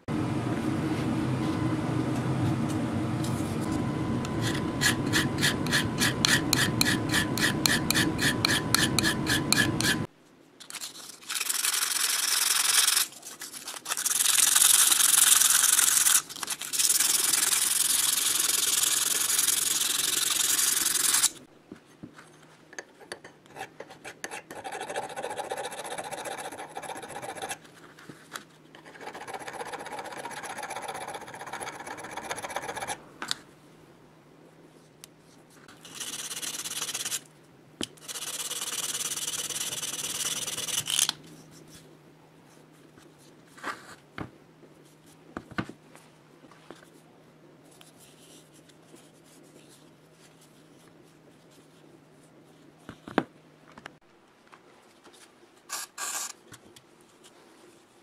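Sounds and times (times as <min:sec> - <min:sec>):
file scraping on steel shaft: 0:04.2 - 0:10.1, 0:23.0 - 0:27.6, 0:28.8 - 0:33.0.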